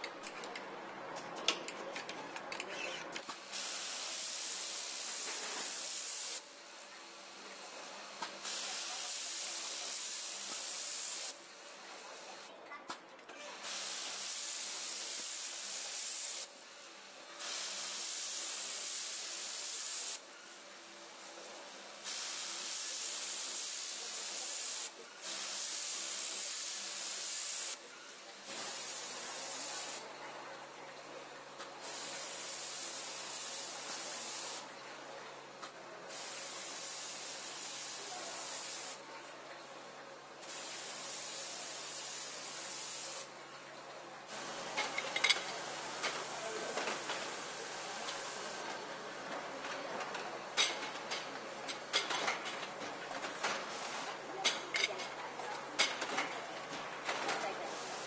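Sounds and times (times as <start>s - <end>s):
compressed air hissing: 3.4s - 6.4s, 8.4s - 11.4s, 13.6s - 16.5s, 17.4s - 20.2s, 22.0s - 27.8s, 40.4s - 43.3s.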